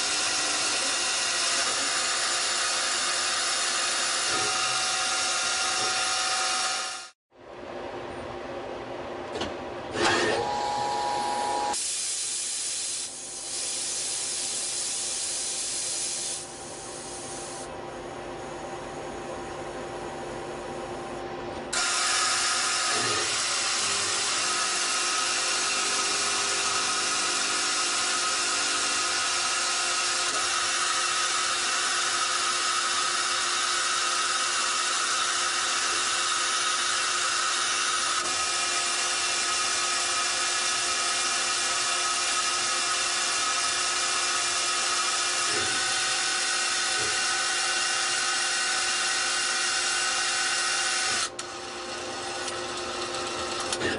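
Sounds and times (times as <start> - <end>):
lathe machine whine: 21.8 - 53.9.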